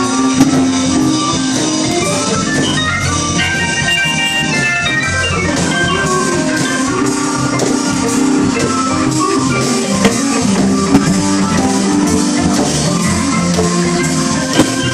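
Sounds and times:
blues band playing loudly: 0:00.0 - 0:14.9
electric guitar: 0:00.0 - 0:14.9.

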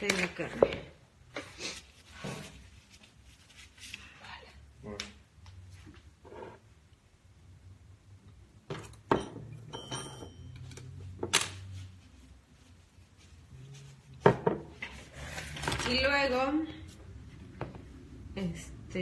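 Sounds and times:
kitchenware knocks and clinks: 0:08.7 - 0:10.6
ringing clink: 0:09.2 - 0:10.6.

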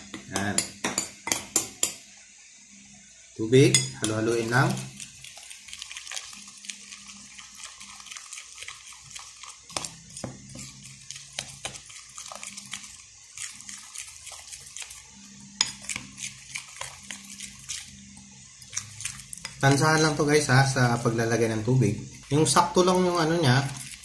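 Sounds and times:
utensil stirring batter in a bowl: 0:03.4 - 0:24.0
utensil clicking and scraping bowl: 0:03.8 - 0:18.0, 0:18.6 - 0:20.2, 0:22.9 - 0:24.0.

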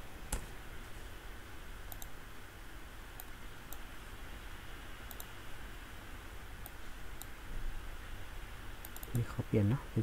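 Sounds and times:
background hiss: 0:00.0 - 0:10.0
computer mouse clicks: 0:01.9 - 0:02.2, 0:05.1 - 0:05.4, 0:06.6 - 0:07.4, 0:08.8 - 0:09.2.

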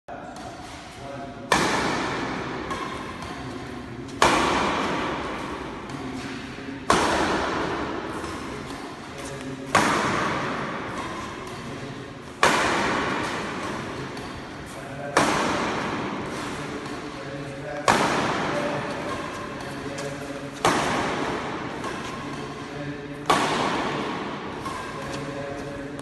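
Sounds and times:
sharp ringing hits echoing: 0:09.7 - 0:26.0.

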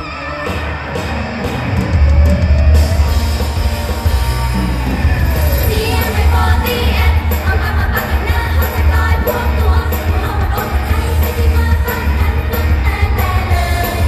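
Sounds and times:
pop backing music with heavy bass: 0:00.0 - 0:14.0
women singing into microphones: 0:05.7 - 0:14.0.

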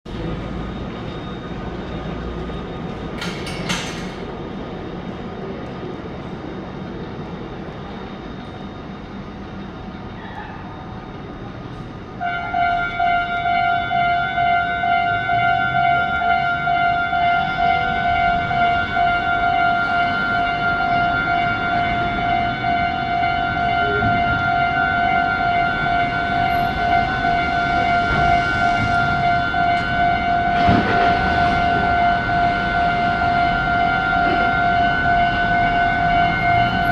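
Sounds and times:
train rumbling: 0:00.1 - 0:36.9
level crossing warning bell: 0:00.2 - 0:04.2, 0:12.4 - 0:36.9.

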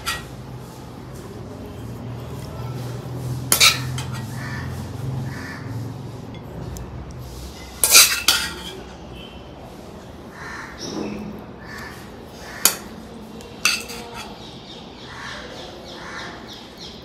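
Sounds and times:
cutlery clinking against dishes: 0:00.0 - 0:00.4, 0:03.5 - 0:04.4, 0:07.6 - 0:08.9, 0:12.6 - 0:13.0, 0:13.6 - 0:14.4.

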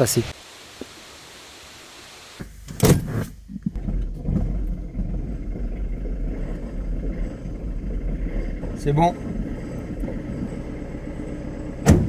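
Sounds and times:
van engine starting and idling: 0:02.4 - 0:12.0.

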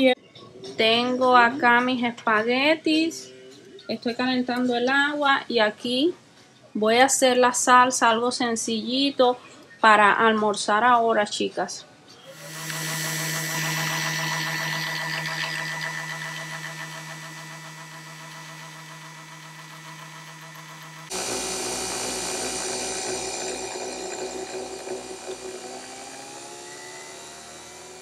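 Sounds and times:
coffee machine humming: 0:12.3 - 0:28.0.

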